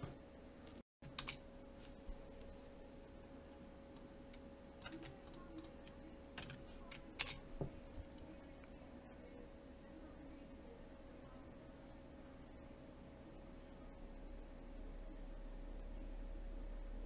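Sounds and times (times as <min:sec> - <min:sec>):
faint steady hum: 0:00.0 - 0:17.0
keyboard typing and clicking: 0:04.8 - 0:07.4.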